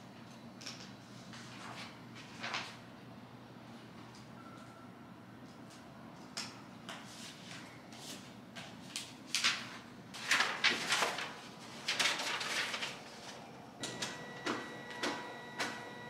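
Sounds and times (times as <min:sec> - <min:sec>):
papers and folders rustling: 0:00.6 - 0:02.8, 0:06.9 - 0:15.9.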